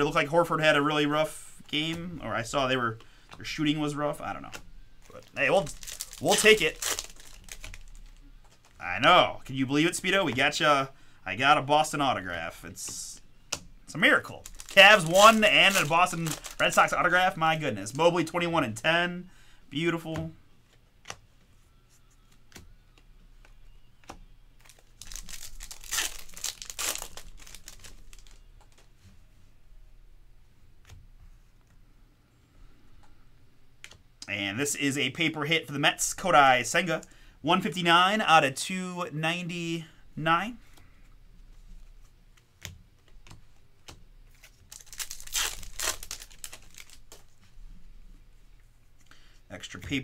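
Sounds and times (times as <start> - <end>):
cards being handled: 1.6 - 8.8, 12.2 - 18.0, 20.0 - 29.2, 40.6 - 47.5
foil wrapper crinkling: 5.0 - 8.8, 14.3 - 17.3, 24.6 - 28.4, 44.3 - 47.3.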